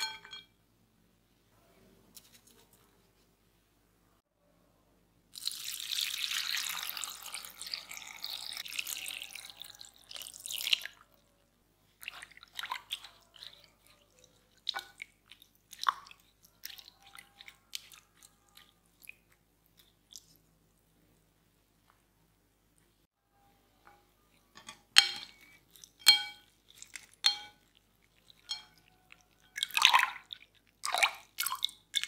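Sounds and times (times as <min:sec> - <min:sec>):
water pouring into glass bowl: 0:05.4 - 0:11.1, 0:25.3 - 0:32.0
spoon stirring potatoes in water: 0:11.9 - 0:20.6, 0:23.9 - 0:32.0.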